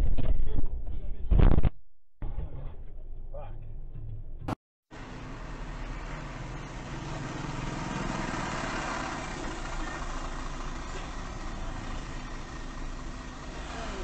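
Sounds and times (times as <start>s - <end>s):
car engine idling: 4.9s - 14.0s
road noise: 4.9s - 14.0s.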